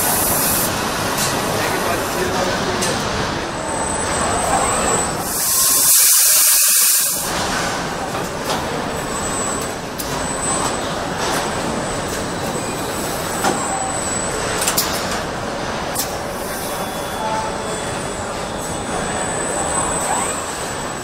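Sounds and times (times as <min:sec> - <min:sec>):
loud hiss of air: 0:05.2 - 0:07.3.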